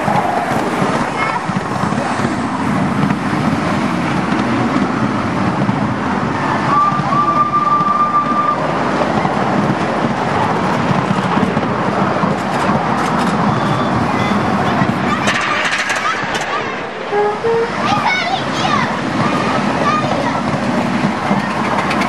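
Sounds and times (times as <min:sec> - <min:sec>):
miniature train rumbling on track: 0:00.0 - 0:22.0
train whistle: 0:06.6 - 0:08.7, 0:17.1 - 0:17.9.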